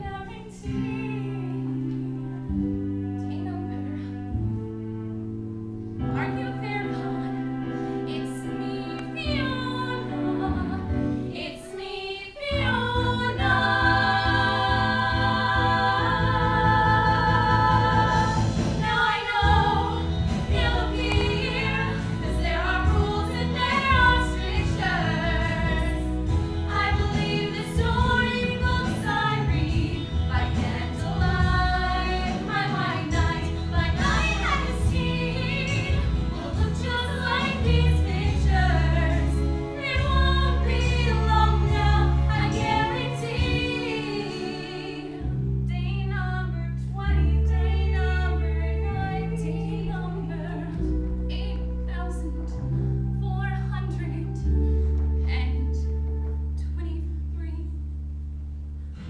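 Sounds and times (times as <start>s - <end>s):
recorded instrumental backing: 0.0s - 59.0s
women and girls singing: 8.2s - 50.9s.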